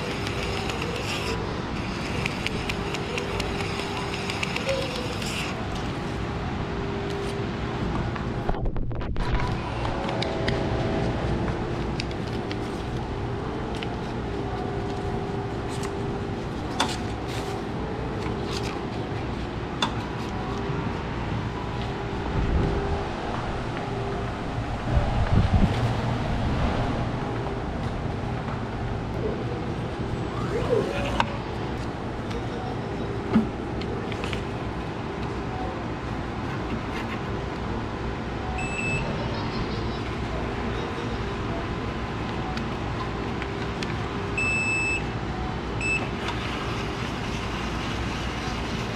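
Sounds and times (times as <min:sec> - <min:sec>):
machine hum: 0:00.0 - 0:36.6
short electronic beep: 0:38.5 - 0:39.1.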